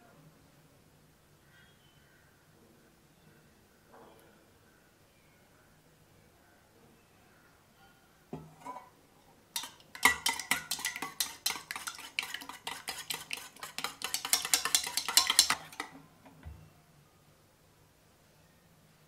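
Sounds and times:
spoon clinking in metal bowl: 0:09.6 - 0:16.0.

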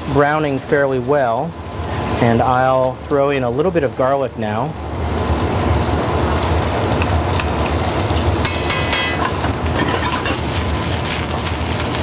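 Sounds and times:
potatoes sizzling in a skillet: 0:00.0 - 0:12.0
spoon clinking against pan: 0:08.4 - 0:10.4.

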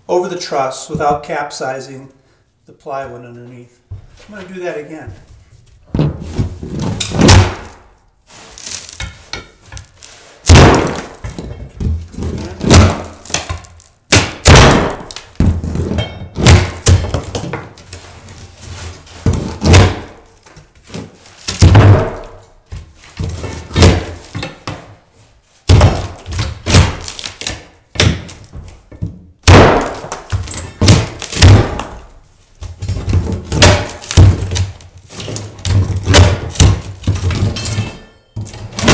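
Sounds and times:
board cracking: 0:32.7 - 0:37.6.

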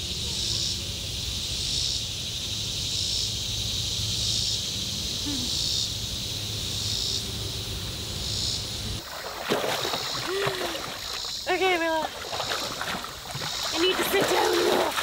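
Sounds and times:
insect chorus: 0:00.0 - 0:15.0
dog wading through water: 0:09.0 - 0:15.0.

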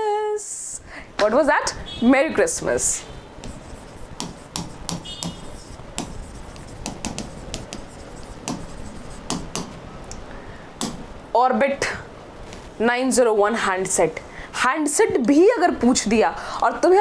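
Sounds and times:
pen tapping on board: 0:03.4 - 0:09.8, 0:10.8 - 0:11.0.

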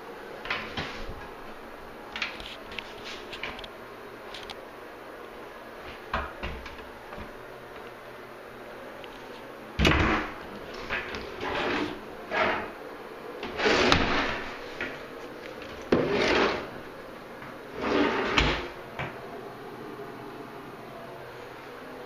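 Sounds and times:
wooden drawers sliding and knocking: 0:15.7 - 0:16.7, 0:17.8 - 0:18.7.

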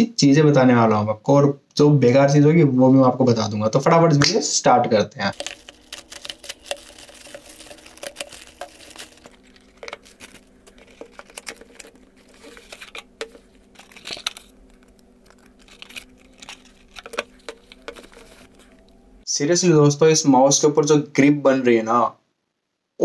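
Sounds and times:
plastic bag crinkling and tearing: 0:05.3 - 0:19.0
wrap and cardboard box rustling: 0:05.3 - 0:19.0.

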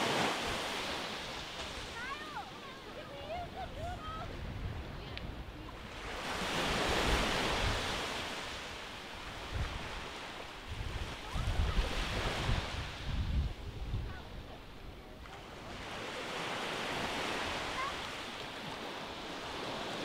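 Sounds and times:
small waves breaking on sand: 0:00.0 - 0:20.0
wind buffeting microphone: 0:03.1 - 0:08.4, 0:09.2 - 0:15.2.

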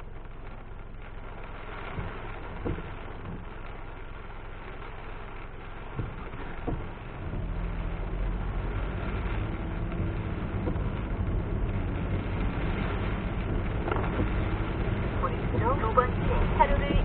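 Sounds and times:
engine and road rumble: 0:00.0 - 0:17.0
rain and wet tyres hissing: 0:00.0 - 0:17.0.

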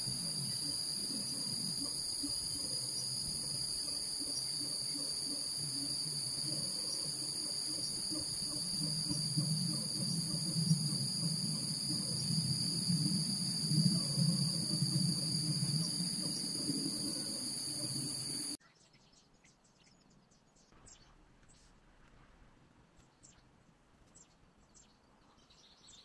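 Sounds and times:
faint low pulsing: 0:00.0 - 0:18.6
high-pitched insect drone: 0:00.0 - 0:18.6.

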